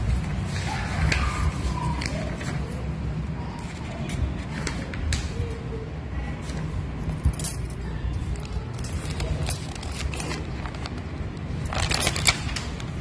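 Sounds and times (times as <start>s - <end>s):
low background hum: 0.0s - 13.0s
paper notebook clicks and rustles: 8.7s - 13.0s.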